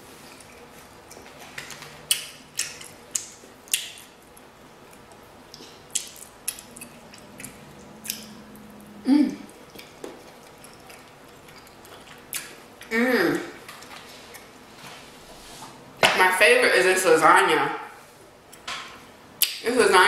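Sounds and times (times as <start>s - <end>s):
wet mouth clicks while chewing: 0.4s - 8.7s
person humming mm: 8.6s - 9.5s.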